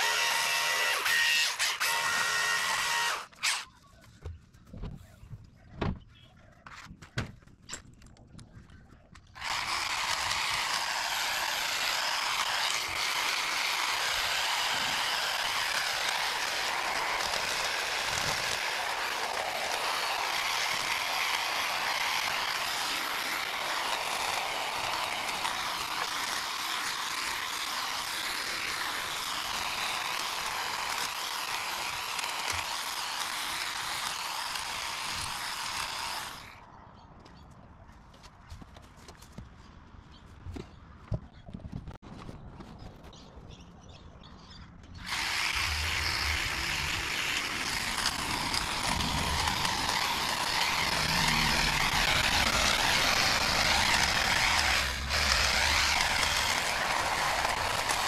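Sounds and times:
power tool running: 0:00.0 - 0:03.6, 0:09.4 - 0:36.6, 0:45.0 - 0:58.0
hedge trimmer rattling: 0:09.4 - 0:36.5, 0:45.0 - 0:58.0
branches knocking and snapping: 0:45.0 - 0:58.0.

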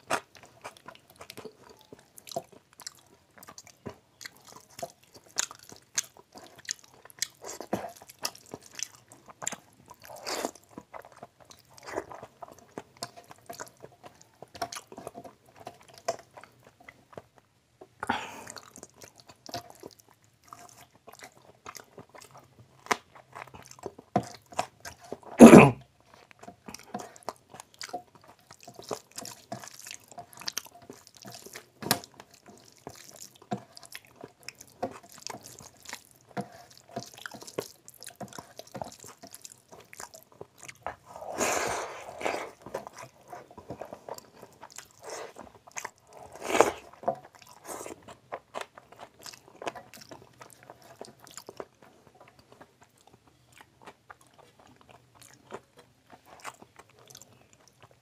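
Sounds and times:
man chewing wetly: 0:00.0 - 0:58.0.

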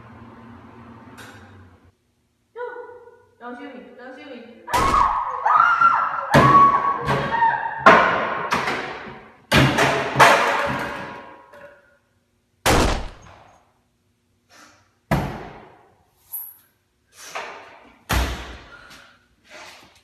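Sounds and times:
bangs on metal closet door: 0:06.3 - 0:11.3.

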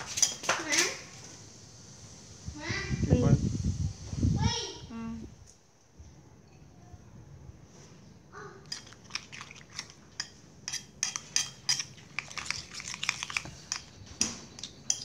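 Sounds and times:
wet squelching: 0:08.6 - 0:10.0, 0:11.2 - 0:13.9
fork clicking against bowl: 0:08.6 - 0:15.0.

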